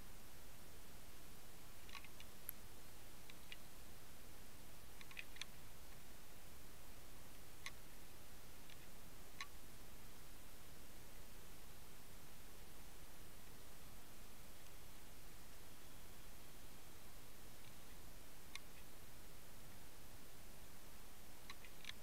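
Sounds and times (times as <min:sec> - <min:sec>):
faint sharp clicks: 0:01.8 - 0:02.6, 0:05.0 - 0:06.0, 0:14.6 - 0:14.8, 0:17.6 - 0:18.9, 0:21.4 - 0:22.0.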